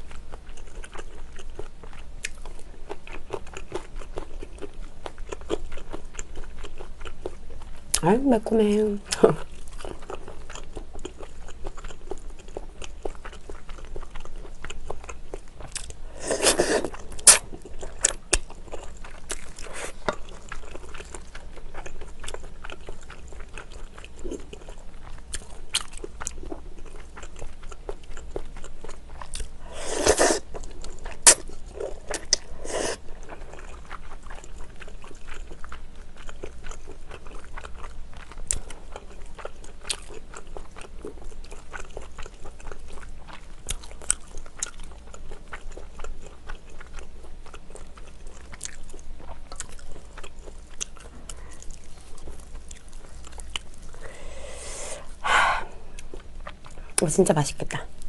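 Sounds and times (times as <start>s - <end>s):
person chewing: 0.0s - 8.0s, 9.1s - 57.0s
slurping noodles: 16.2s - 17.4s, 29.7s - 30.5s, 31.2s - 33.0s.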